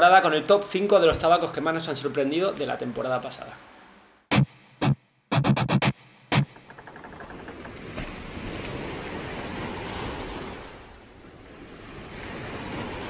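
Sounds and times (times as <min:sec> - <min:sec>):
sea waves washing in: 0:06.6 - 0:13.0.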